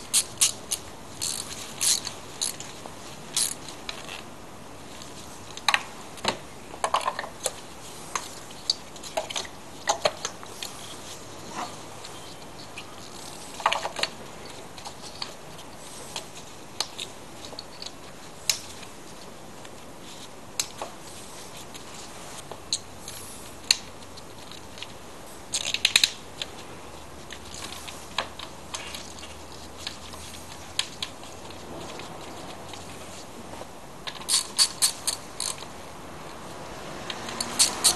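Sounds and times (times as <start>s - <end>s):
hand tools clicking and clinking: 0.0s - 4.1s, 34.1s - 35.7s, 37.1s - 37.9s.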